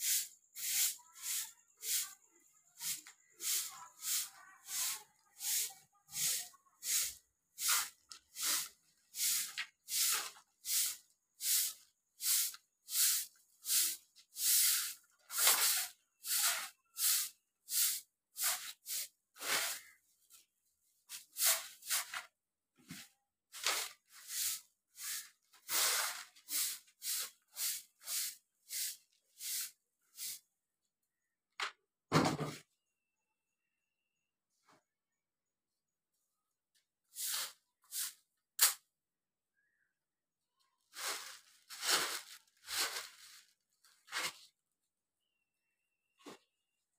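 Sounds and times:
broom sweeping a hard floor: 0.0s - 30.5s, 37.0s - 38.8s, 40.9s - 44.6s.

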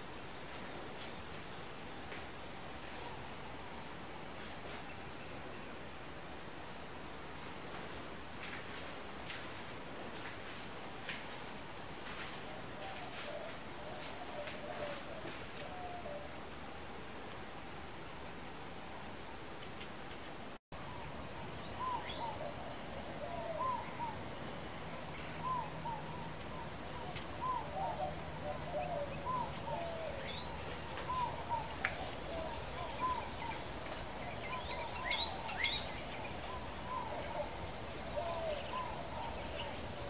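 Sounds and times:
birds chirping: 20.8s - 40.0s.

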